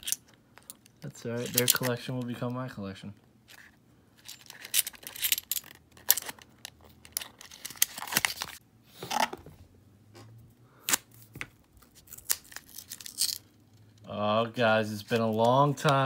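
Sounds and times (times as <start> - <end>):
paper wrapper tearing and crinkling: 11.8 - 13.2.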